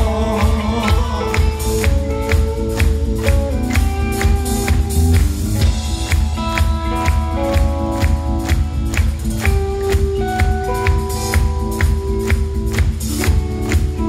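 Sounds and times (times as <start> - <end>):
electric guitars sustained notes: 0.0 - 14.0
steady drum beat: 0.0 - 14.0.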